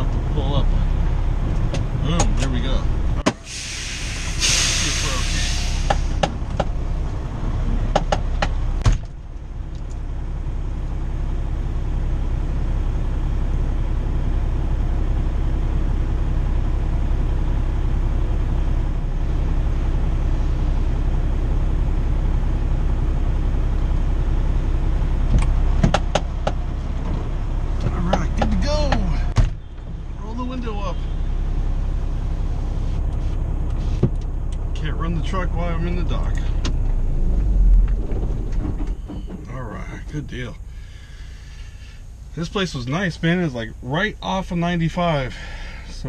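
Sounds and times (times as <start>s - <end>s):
diesel truck engine idling: 0.0s - 46.0s
sharp clicks and knocks: 7.9s - 9.2s, 25.3s - 27.2s, 27.8s - 29.6s.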